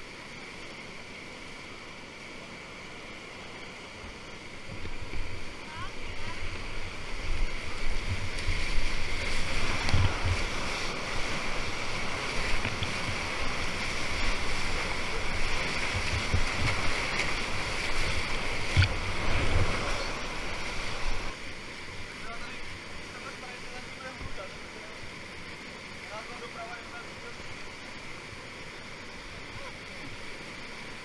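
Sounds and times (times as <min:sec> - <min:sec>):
whitewater rapids rushing: 0:00.0 - 0:31.0
water splashing against camera: 0:04.7 - 0:21.4.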